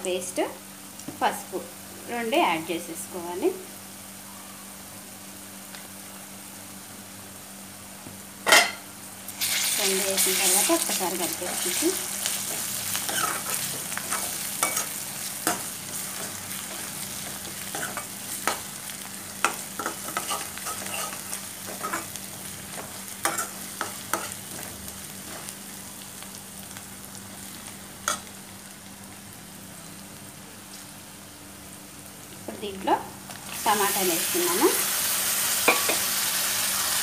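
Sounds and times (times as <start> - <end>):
vegetables sizzling in oil: 0.0 - 37.0
spoon clinking and scraping a pan: 13.1 - 15.6, 19.4 - 22.1, 23.2 - 24.4, 35.6 - 36.1.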